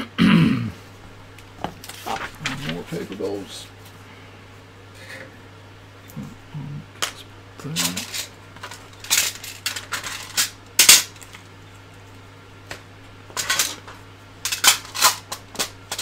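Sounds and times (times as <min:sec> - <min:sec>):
tools clattering in a tray: 0:07.8 - 0:11.1, 0:13.4 - 0:16.0.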